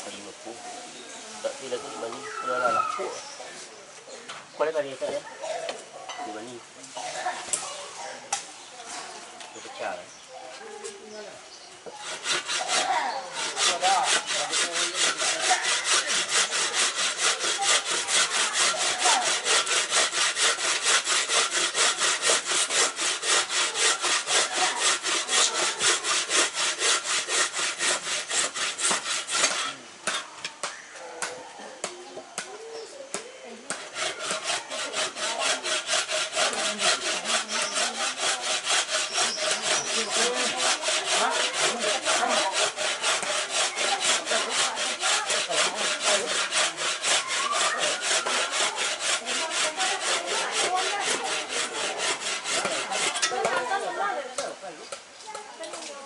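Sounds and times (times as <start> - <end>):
hand saw cutting wood: 11.9 - 30.3, 33.7 - 54.1.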